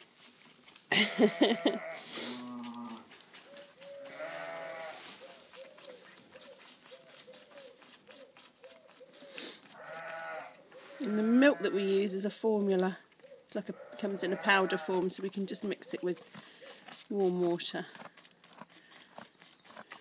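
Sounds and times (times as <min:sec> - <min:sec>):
lamb sucking bottle teat: 0:00.0 - 0:12.1, 0:13.1 - 0:20.0
sheep bleating: 0:01.1 - 0:03.0, 0:04.0 - 0:05.0, 0:09.7 - 0:10.6, 0:13.7 - 0:15.1.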